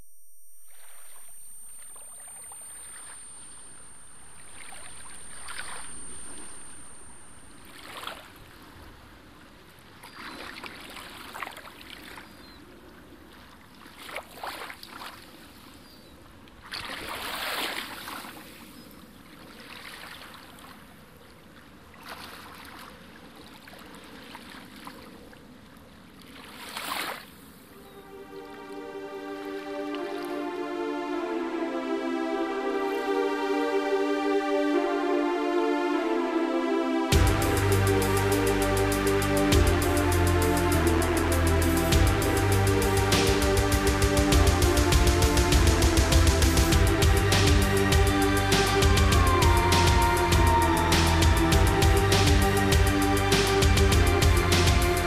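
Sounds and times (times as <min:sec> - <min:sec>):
small waves lapping on stony shore: 0:07.7 - 0:15.9, 0:16.6 - 0:27.7.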